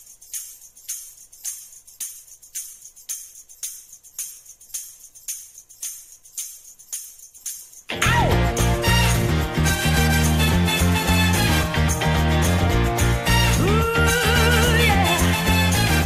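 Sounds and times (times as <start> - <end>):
jingling tambourine-like percussion: 0.0 - 16.0
faint low bass: 8.0 - 16.0.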